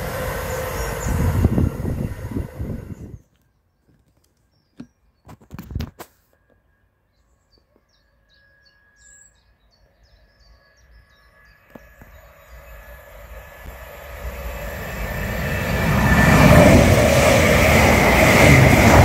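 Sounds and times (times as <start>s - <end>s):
electric train approaching: 0.0s - 3.2s, 8.0s - 19.0s.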